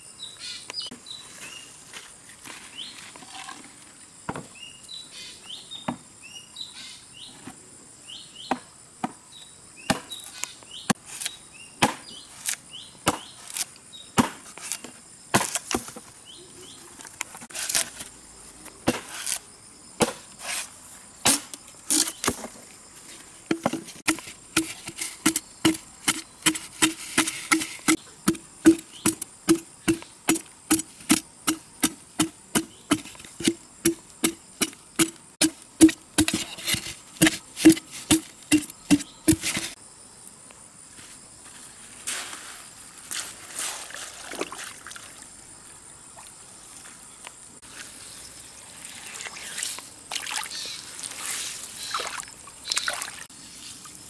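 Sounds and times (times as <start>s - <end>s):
axe chopping wood: 9.9s - 10.2s, 11.8s - 12.1s, 13.0s - 13.4s, 14.2s - 14.5s, 15.3s - 15.9s, 20.0s - 20.3s, 23.5s - 39.8s
birds chirping: 27.2s - 30.8s, 38.5s - 39.8s.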